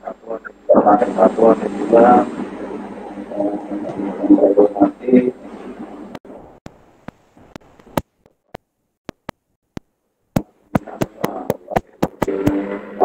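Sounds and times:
sharp clicks: 6.6 - 12.6.

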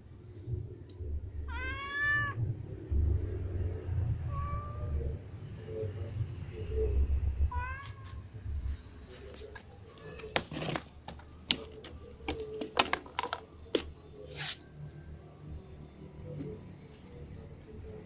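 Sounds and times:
cat meowing: 1.5 - 2.4, 4.2 - 5.1, 7.5 - 8.3.

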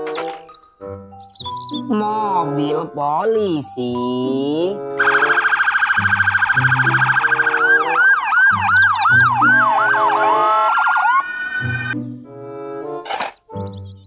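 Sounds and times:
electronic police siren: 5.0 - 12.0.

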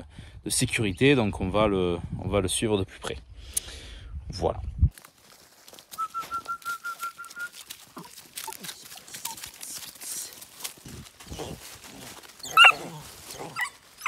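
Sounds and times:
footsteps on dry leaves: 4.9 - 14.0.

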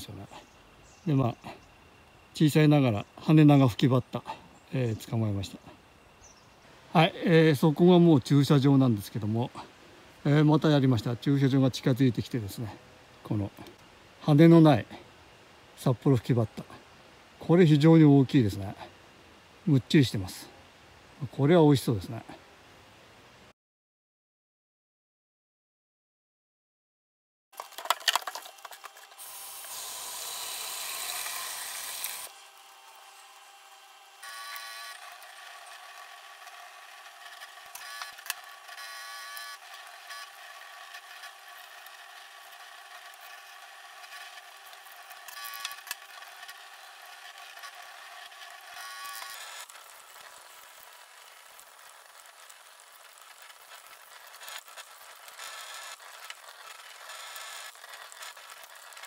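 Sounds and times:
faint steady hum: 0.0 - 23.5.

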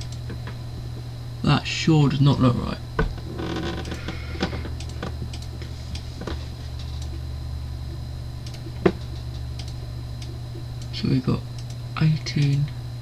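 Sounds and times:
low electrical hum: 0.0 - 13.0
computer mouse clicking: 4.8 - 6.1, 6.7 - 7.2, 8.4 - 10.9, 11.5 - 11.8.

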